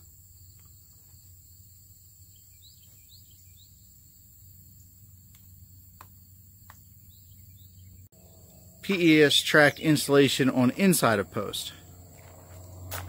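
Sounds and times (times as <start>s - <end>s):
insect drone: 0.0s - 13.0s
bird chirps: 2.2s - 4.2s, 7.0s - 10.4s
low hum: 10.6s - 13.0s.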